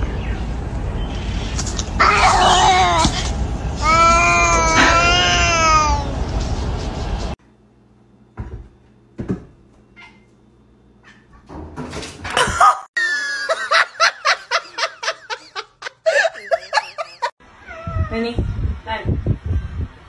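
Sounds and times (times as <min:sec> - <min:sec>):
cats crying out: 0:02.0 - 0:06.2.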